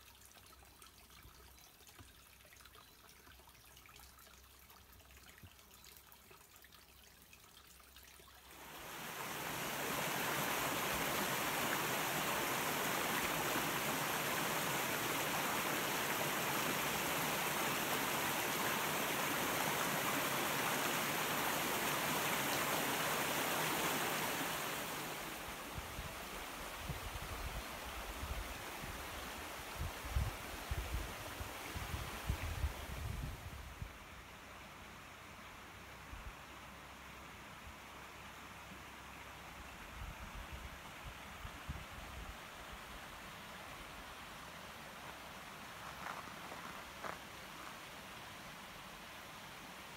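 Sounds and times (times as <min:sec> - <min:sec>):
stream water rushing: 0:08.4 - 0:39.7.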